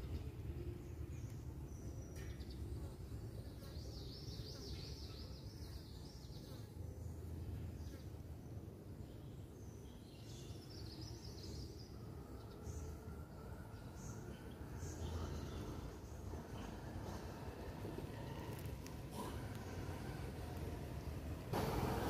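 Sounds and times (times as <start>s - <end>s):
low outdoor rumble: 12.0s - 22.0s.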